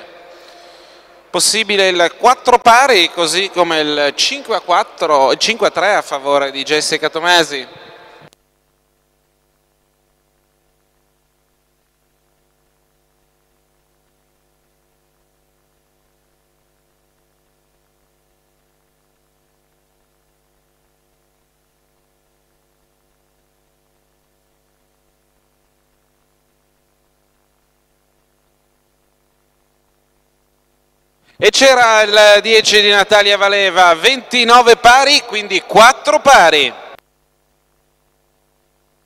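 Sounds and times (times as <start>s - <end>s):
faint electrical hum: 0.0s - 39.0s
light hiss: 8.0s - 31.4s.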